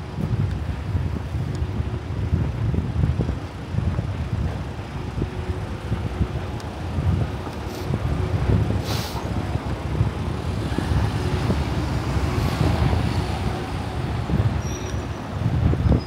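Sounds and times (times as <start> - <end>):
wind rumbling on microphone: 0.0 - 16.0
vehicles passing: 3.3 - 16.0
short hiss: 8.8 - 9.2.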